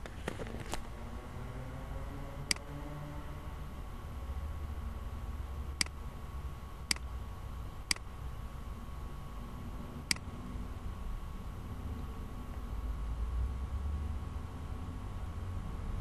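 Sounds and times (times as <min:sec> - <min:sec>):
low room hum: 0:00.0 - 0:16.0
computer mouse clicks: 0:02.5 - 0:02.7, 0:06.9 - 0:07.1.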